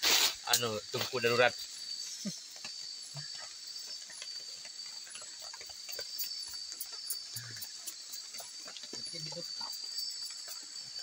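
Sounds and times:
night insects chirring: 0:00.0 - 0:11.0.

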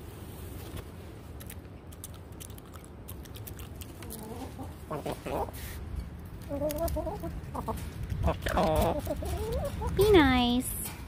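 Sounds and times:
hens clucking: 0:04.0 - 0:05.8, 0:06.4 - 0:10.0.

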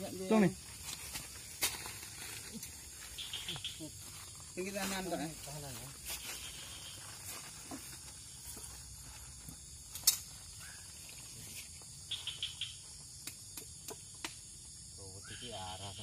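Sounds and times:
small ticks: 0:12.1 - 0:14.4.

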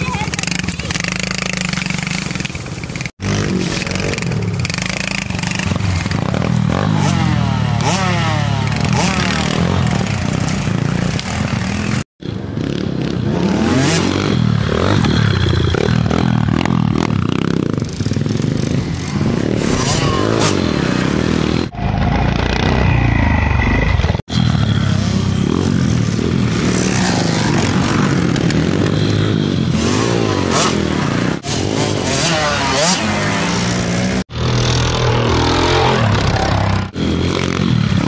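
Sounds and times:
small motorbike engine revving: 0:03.2 - 0:11.2.

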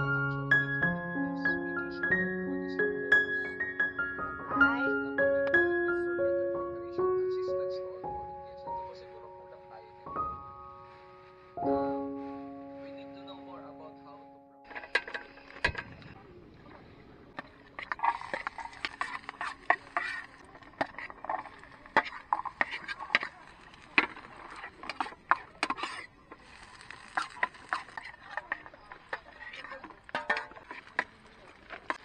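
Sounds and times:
metal spoon scraping and clinking: 0:17.8 - 0:23.2.

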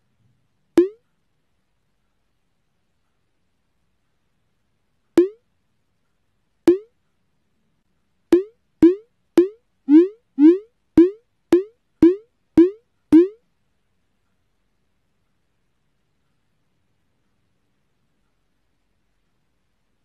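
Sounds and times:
electronic bloops: 0:00.8 - 0:01.0, 0:05.2 - 0:05.4, 0:06.7 - 0:06.9, 0:08.4 - 0:13.4.

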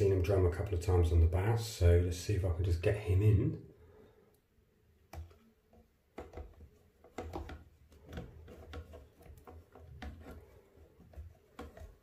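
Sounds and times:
handling clicks and taps: 0:05.0 - 0:12.0.

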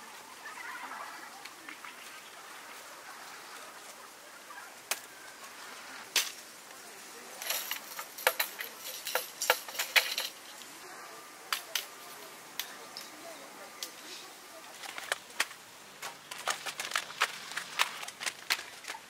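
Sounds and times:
steady outdoor hiss: 0:00.0 - 0:19.0
clicks and metallic clinks: 0:07.4 - 0:10.6.

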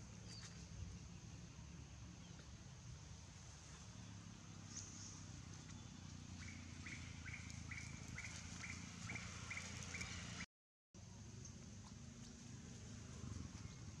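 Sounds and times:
bird chirping: 0:04.0 - 0:10.4.

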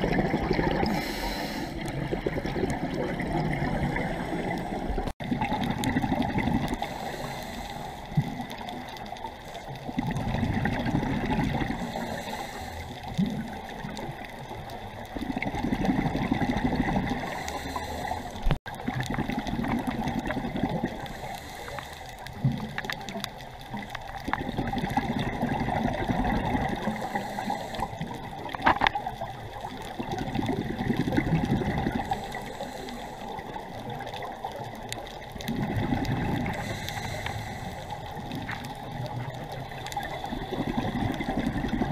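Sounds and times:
air bubbles gurgling: 0:00.0 - 0:07.4, 0:08.1 - 0:12.4, 0:13.0 - 0:21.6, 0:22.3 - 0:32.7, 0:33.3 - 0:41.9
diver breathing through regulator: 0:00.7 - 0:02.2, 0:06.7 - 0:08.2, 0:11.6 - 0:13.3, 0:17.0 - 0:18.6, 0:21.0 - 0:22.5, 0:26.8 - 0:28.3, 0:31.8 - 0:33.7, 0:35.7 - 0:38.6, 0:39.7 - 0:41.9.

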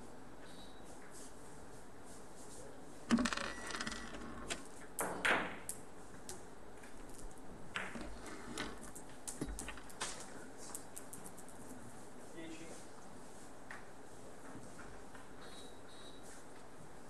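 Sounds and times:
billiard balls clicking: 0:03.1 - 0:11.6.

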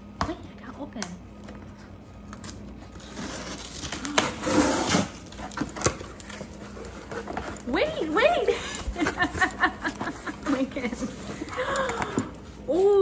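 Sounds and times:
cardboard rustling and scraping: 0:02.8 - 0:11.5.

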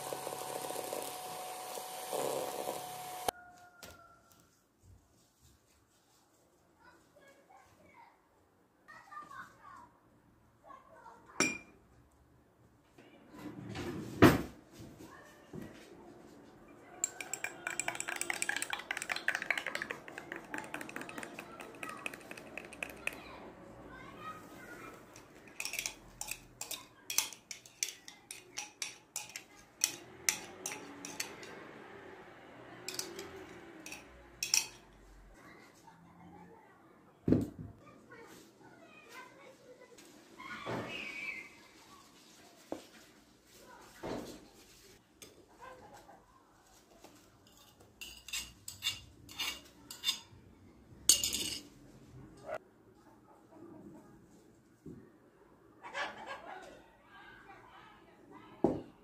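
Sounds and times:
metal spoon clinking on glass: 0:17.0 - 0:23.2, 0:25.1 - 0:31.6, 0:32.9 - 0:34.8, 0:47.5 - 0:50.3, 0:51.1 - 0:51.7
metal spoon scraping china plate: 0:47.5 - 0:50.3.

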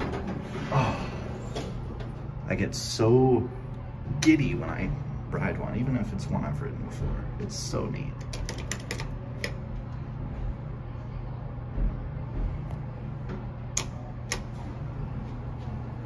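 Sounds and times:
low hum in elevator car: 0:08.8 - 0:16.0
elevator button clicks and taps: 0:13.7 - 0:14.5.

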